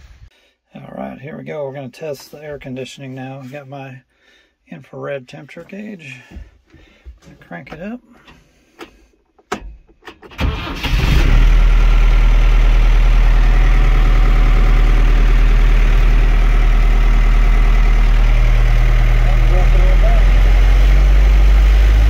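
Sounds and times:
diesel engine cranking and idling: 10.0 - 22.0.

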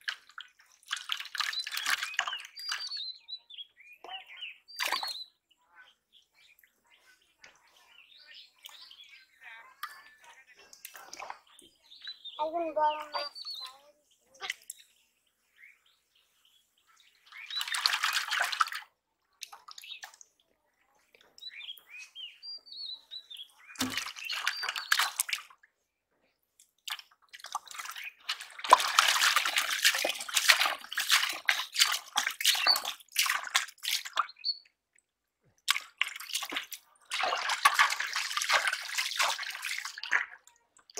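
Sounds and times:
muddy water sloshing: 0.0 - 3.1, 4.0 - 5.3, 9.8 - 11.8, 17.0 - 22.0, 23.6 - 25.6, 26.6 - 40.9
bird chirps: 1.4 - 18.2, 21.1 - 25.6, 32.5 - 33.0, 34.2 - 34.7.

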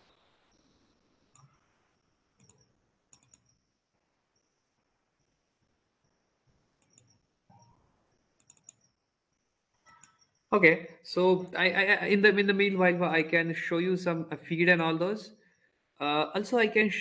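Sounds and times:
computer mouse clicks: 1.3 - 1.7, 2.3 - 3.7, 6.0 - 9.1, 9.7 - 10.5.

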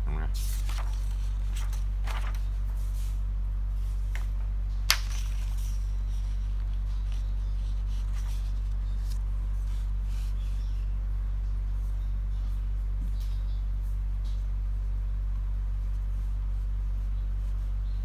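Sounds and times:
low electrical hum: 0.0 - 18.0
paper rustling: 0.4 - 3.2, 4.1 - 10.5.

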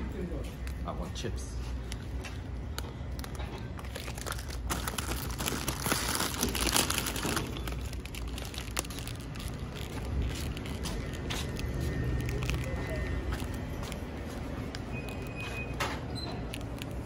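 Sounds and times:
plastic chip bag crinkling: 2.7 - 15.4, 16.4 - 17.0.

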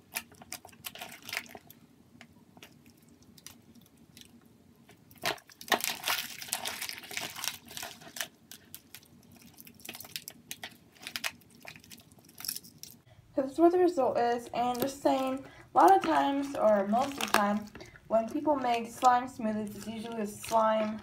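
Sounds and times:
hands squishing slime: 14.5 - 21.0.

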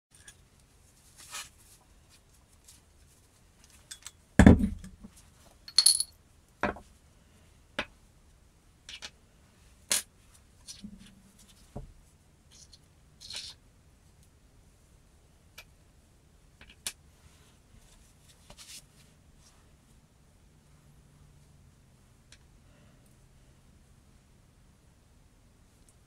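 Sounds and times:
metal parts clinking on worktop: 5.7 - 6.2.

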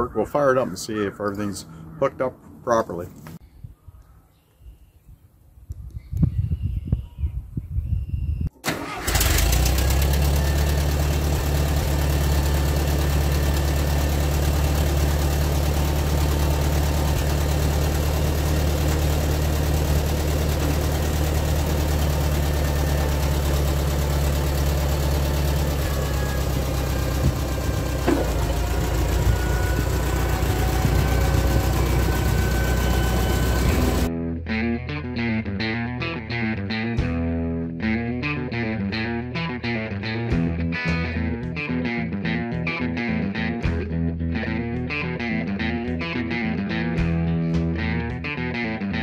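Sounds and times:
tractor engine idling: 8.6 - 34.1.

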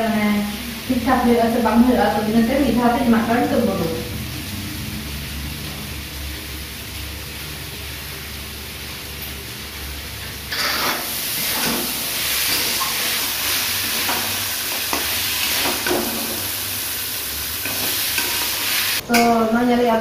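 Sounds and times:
chickpeas sizzling in a pan: 0.0 - 19.0
spatula scraping a pan: 10.5 - 16.4.

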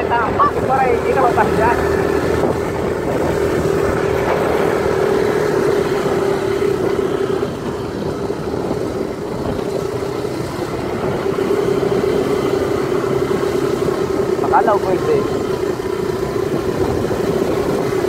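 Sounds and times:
motorcycle engine running: 0.0 - 18.0
road noise: 0.0 - 18.0.

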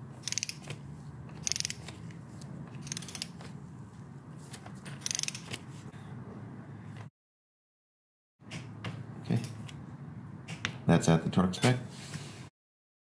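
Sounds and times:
ratcheting torque wrench clicking: 0.2 - 0.7, 1.3 - 1.9, 2.8 - 3.4, 5.0 - 5.5.

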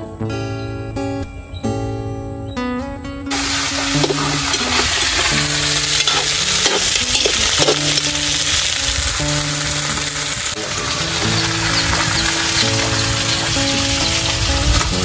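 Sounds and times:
crabs sizzling in hot oil: 3.3 - 15.0
metal spatula scraping a wok: 4.0 - 8.1.

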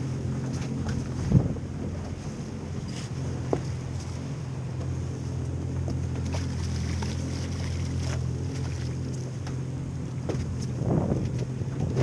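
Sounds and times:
wind on microphone: 0.0 - 4.1, 10.3 - 12.0
boat engine idling: 0.0 - 12.0
water splashes: 0.0 - 12.0.

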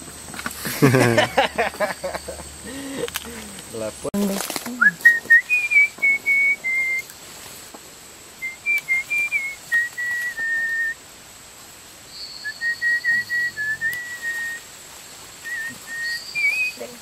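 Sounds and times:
person whistling a tune: 4.8 - 7.0, 8.4 - 11.0, 12.4 - 14.6, 15.5 - 16.8.

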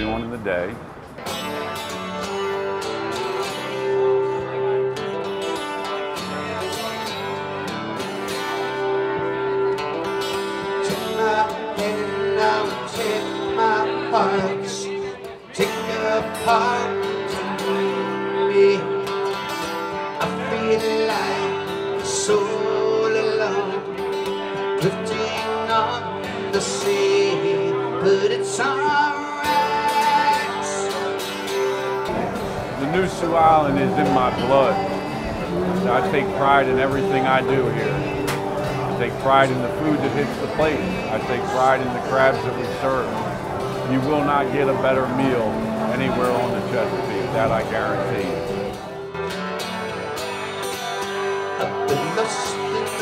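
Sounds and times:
acoustic guitar strummed: 0.8 - 53.0
man singing: 10.7 - 48.8, 51.5 - 53.0.

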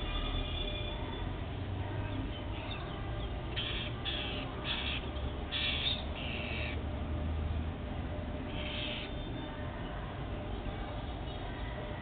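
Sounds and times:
parakeets screeching: 3.6 - 6.7, 8.5 - 9.2.

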